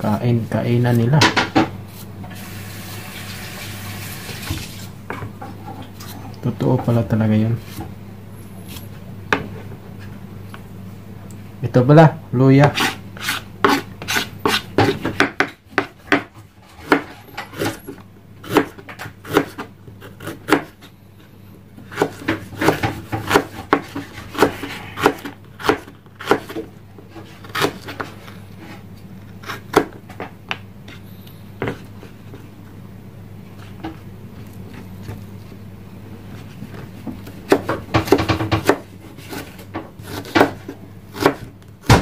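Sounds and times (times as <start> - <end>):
knife chopping on wooden board: 12.6 - 20.8, 21.9 - 26.7, 27.4 - 28.1, 29.4 - 30.0, 37.5 - 42.0.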